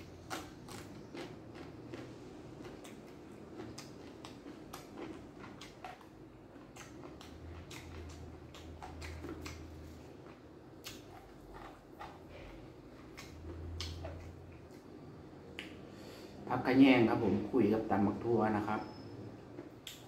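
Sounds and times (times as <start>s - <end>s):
person chewing with wet mouth clicks: 0.2s - 12.2s, 13.0s - 14.8s.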